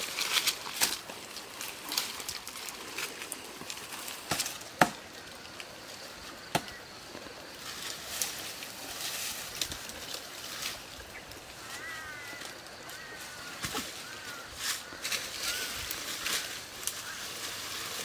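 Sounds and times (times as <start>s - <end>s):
branches snapping: 0.0s - 5.7s, 6.4s - 6.8s
leaves and twigs rustling: 0.0s - 18.0s.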